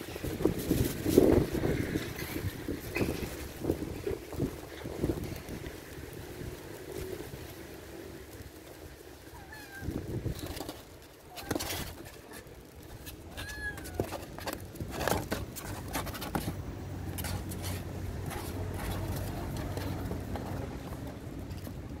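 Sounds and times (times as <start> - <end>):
kitten high call: 9.3 - 10.0, 13.3 - 14.1
scratching inside cardboard box: 9.6 - 21.3.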